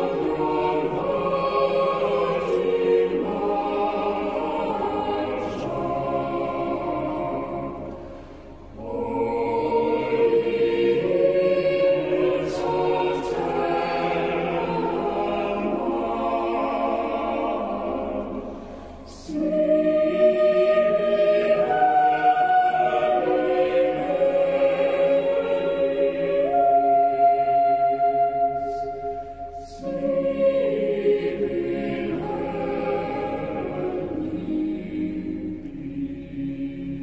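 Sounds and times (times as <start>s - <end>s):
choir singing: 0.0s - 37.0s.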